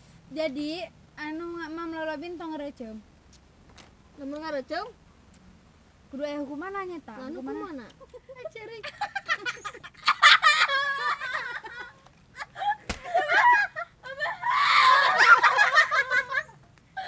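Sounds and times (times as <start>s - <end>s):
women laughing and shrieking: 8.1s - 17.0s.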